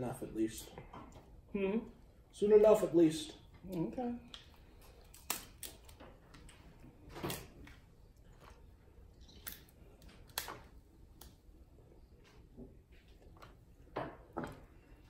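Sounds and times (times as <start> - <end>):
crab shells cracking: 4.3 - 6.6, 9.2 - 11.4.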